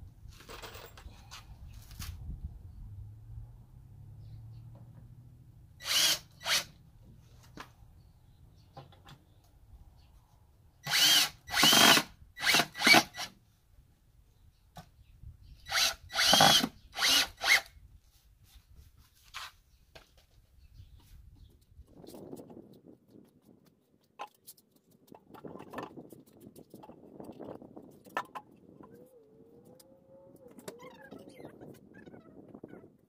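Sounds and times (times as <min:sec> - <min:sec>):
cordless drill driving screws: 0:05.8 - 0:06.7, 0:10.8 - 0:13.3, 0:15.7 - 0:17.7.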